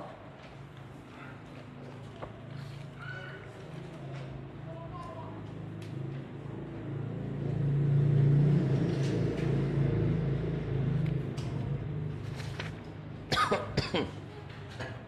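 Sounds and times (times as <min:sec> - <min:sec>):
book pages flipping: 0:00.4 - 0:04.4, 0:11.0 - 0:13.0.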